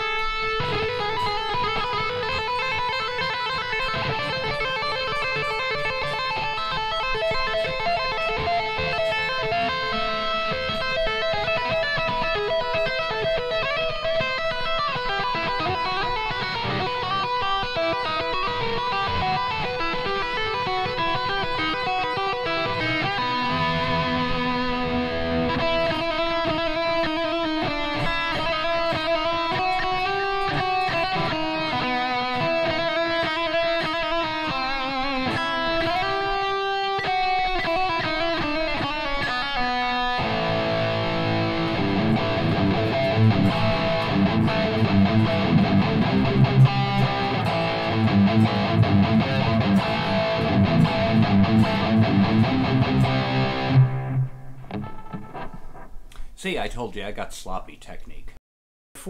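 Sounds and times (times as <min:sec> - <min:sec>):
electric guitar lead and riffs: 0:00.0 - 0:56.4.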